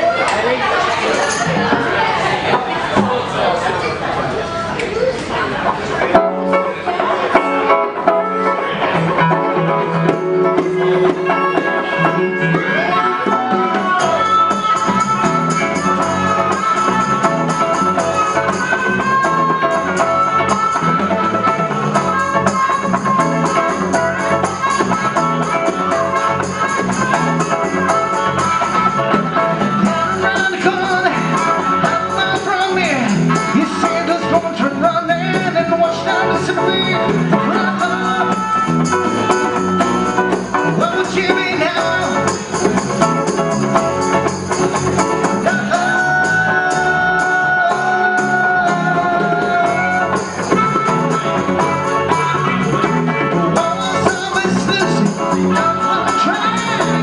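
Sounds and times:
strummed guitars: 0:00.0 - 0:57.0
harmonica bending notes: 0:06.0 - 0:57.0.

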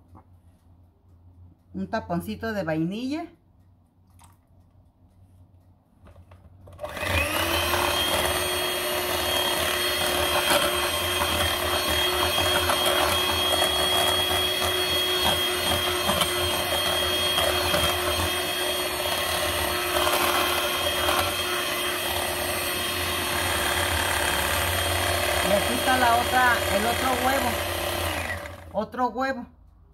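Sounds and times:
electric hand mixer whining: 0:06.7 - 0:28.8.

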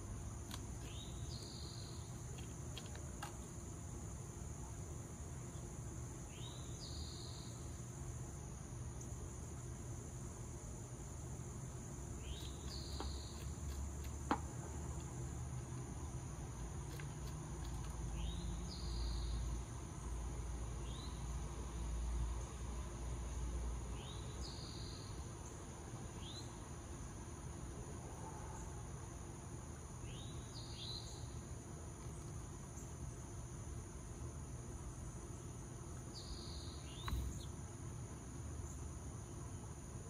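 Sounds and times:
high-pitched insect chorus: 0:00.0 - 0:40.0
sharp click: 0:37.0 - 0:37.5.

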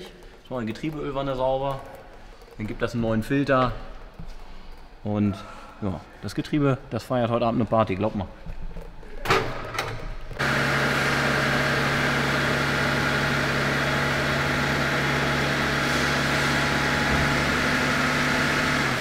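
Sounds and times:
oil flush machine pumping: 0:00.0 - 0:05.3, 0:09.0 - 0:19.0
car engine idling: 0:10.4 - 0:19.0.

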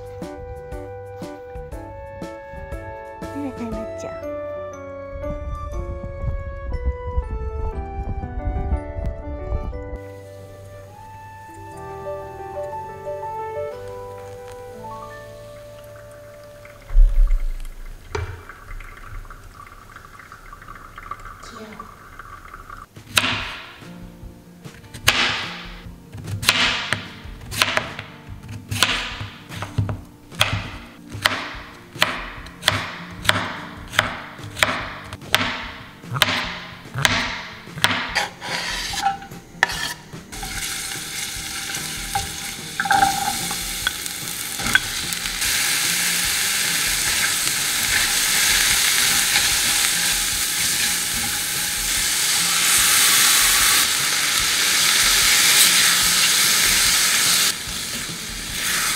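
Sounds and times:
food sizzling in a hot pan: 0:13.8 - 0:22.9, 0:39.7 - 0:58.9
utensil strokes in a bowl: 0:38.2 - 0:40.1.

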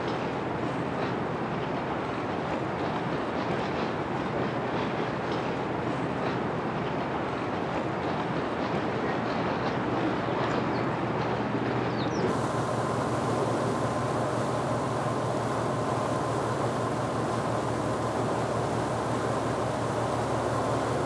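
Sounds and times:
ship engine rumble: 0:06.6 - 0:21.0.

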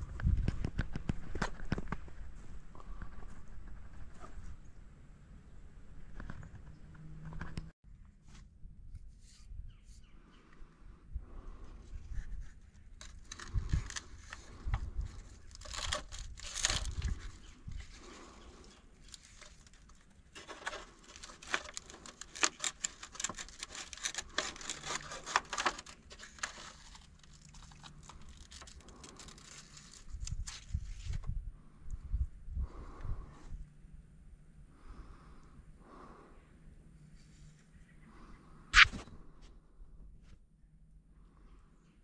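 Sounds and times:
crinkling and rustling handling: 0:12.0 - 0:31.4.

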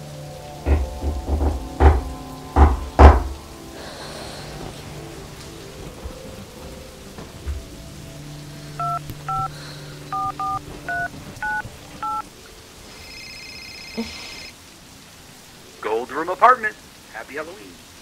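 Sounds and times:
low music drone: 0:00.0 - 0:12.9
phone keypad touch tones: 0:08.8 - 0:09.5, 0:10.1 - 0:12.2
trilling ring tone: 0:13.0 - 0:14.5.

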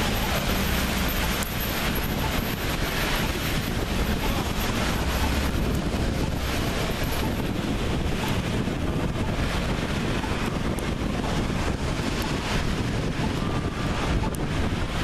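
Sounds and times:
passing traffic rumble: 0:00.0 - 0:15.0
wind on microphone: 0:00.0 - 0:15.0.

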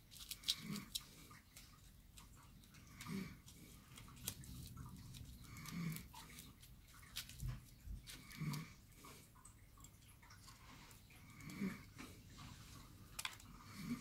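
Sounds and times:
aluminium foil crinkling: 0:00.0 - 0:08.7.

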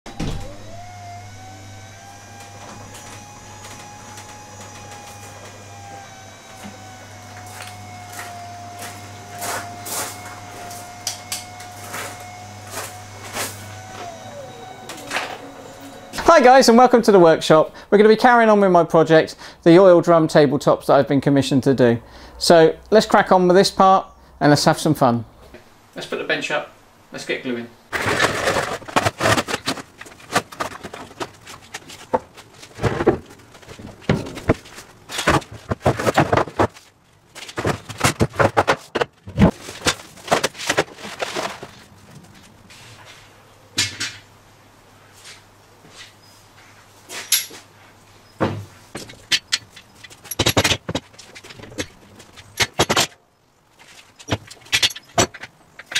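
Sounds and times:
garage door opener motor whine: 0:00.0 - 0:17.1.

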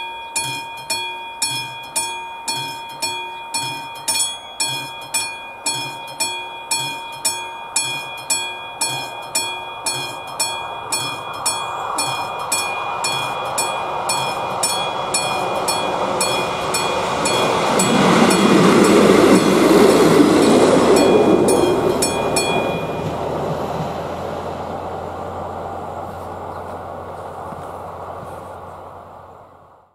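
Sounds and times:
level crossing bell ringing: 0:00.0 - 0:23.4
train rumble: 0:00.0 - 0:29.9.

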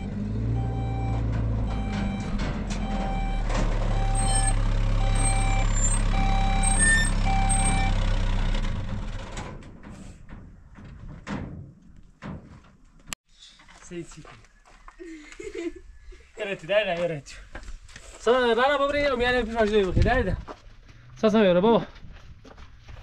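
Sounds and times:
reversing alarm beeping: 0:00.0 - 0:08.0.

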